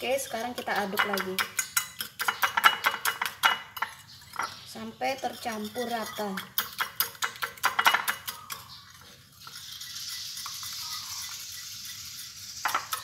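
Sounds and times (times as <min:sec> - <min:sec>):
whisk clicking against bowl: 0:00.0 - 0:03.6, 0:05.4 - 0:08.7.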